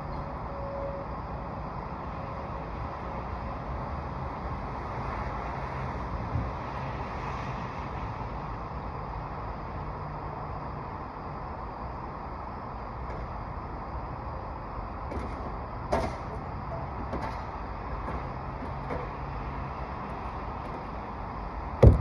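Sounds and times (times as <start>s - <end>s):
outdoor background rumble: 0.0s - 22.0s
sharp knock: 21.8s - 22.0s.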